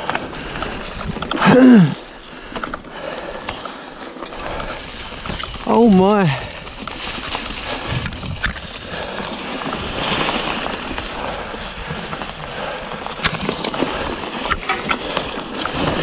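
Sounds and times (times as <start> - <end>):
bike knocking over rough ground: 3.4 - 12.4
bike tyres splashing through mud: 3.6 - 16.0.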